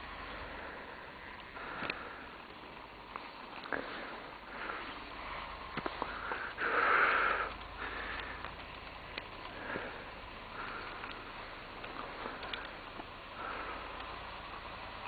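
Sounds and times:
breathing and sniffing: 0:00.2 - 0:02.5, 0:03.6 - 0:08.7, 0:09.4 - 0:14.4
small clicks: 0:01.3 - 0:03.8, 0:07.4 - 0:13.2.

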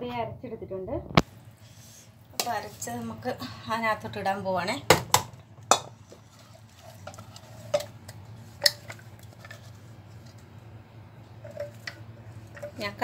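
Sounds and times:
spatula scraping steel jar: 0:11.4 - 0:13.0.

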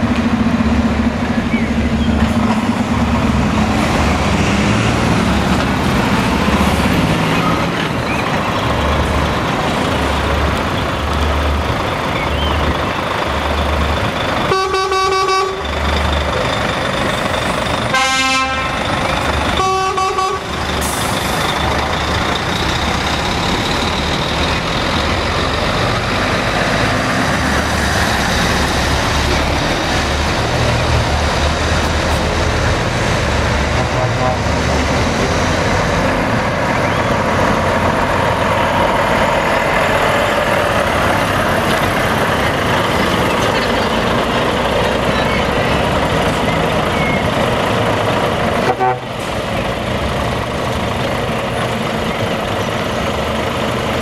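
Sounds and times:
truck diesel engines running: 0:00.0 - 0:54.0
truck horn blasts: 0:14.5 - 0:15.7, 0:17.9 - 0:18.9, 0:19.5 - 0:20.6, 0:33.8 - 0:34.6, 0:48.6 - 0:49.2.

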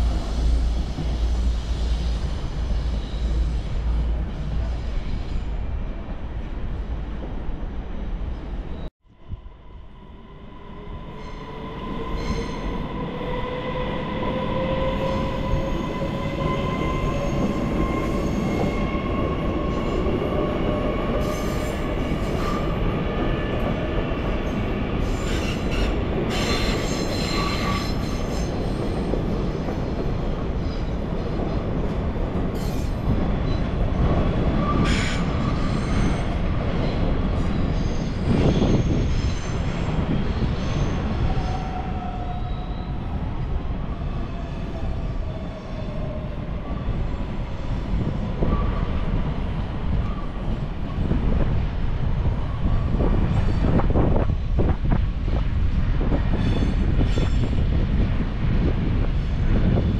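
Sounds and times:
wheels squealing on rails: 0:00.0 - 0:05.8, 0:11.0 - 0:22.9, 0:24.4 - 0:29.7, 0:32.5 - 0:33.7, 0:34.4 - 0:43.3, 0:56.0 - 0:57.8
train rumble with whine: 0:00.0 - 0:11.0, 0:45.9 - 0:59.9.

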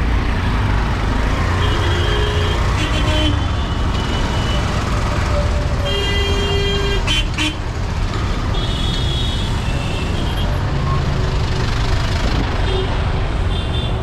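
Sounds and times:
traffic engines rumbling: 0:00.0 - 0:14.0
vehicle horns beeping: 0:01.6 - 0:04.8.

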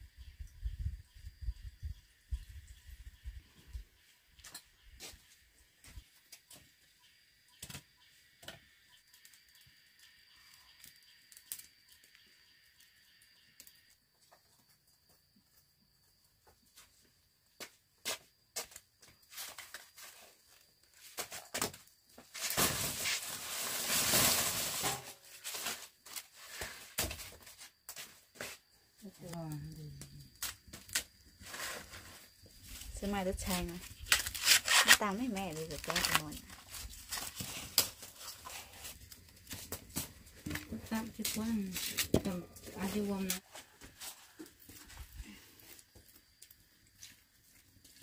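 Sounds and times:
corn husks rustling: 0:19.2 - 0:28.7, 0:30.4 - 0:48.0.

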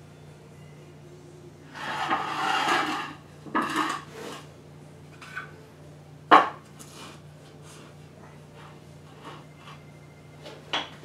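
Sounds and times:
wooden blocks scraping on concrete: 0:01.7 - 0:04.5.

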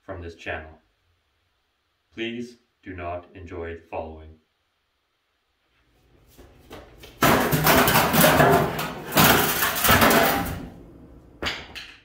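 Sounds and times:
metal fender clattering on concrete: 0:07.2 - 0:10.8.

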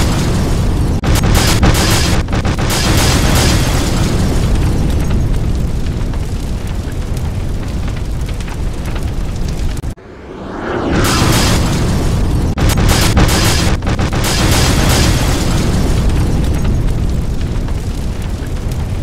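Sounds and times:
explosions rumbling with cracks: 0:00.0 - 0:10.0, 0:10.6 - 0:19.0
rising rush of noise: 0:09.9 - 0:12.6.

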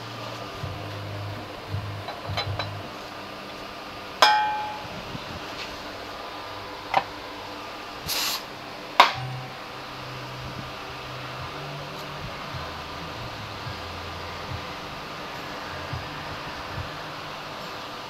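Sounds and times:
fan hum: 0:00.0 - 0:18.0
metal tools clinking on metal: 0:04.2 - 0:04.9
short hiss: 0:08.1 - 0:08.5.

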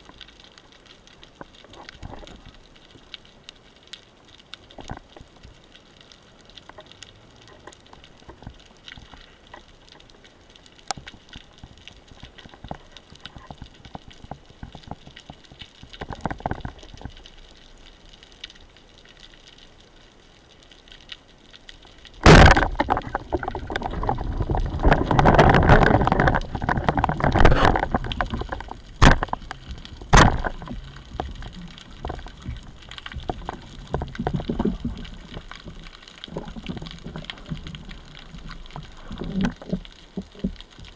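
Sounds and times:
faint underwater crackling: 0:00.0 - 0:40.9
underwater rushing and clattering: 0:00.0 - 0:40.9
sharp knocks: 0:30.1 - 0:30.6.

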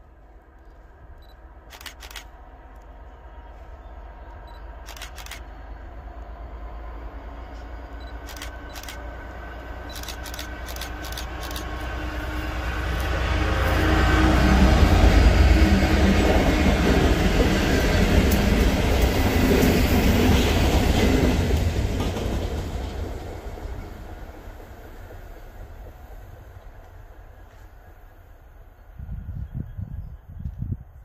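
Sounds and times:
diesel locomotive engines humming: 0:00.0 - 0:30.8
sharp clicks: 0:01.2 - 0:02.9, 0:04.8 - 0:05.5, 0:08.1 - 0:09.0, 0:09.9 - 0:11.7.

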